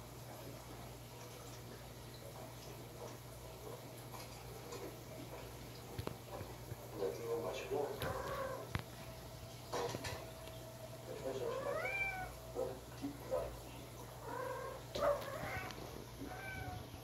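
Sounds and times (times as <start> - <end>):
cat meowing: 8.0 - 8.7, 11.4 - 12.4, 14.2 - 16.9.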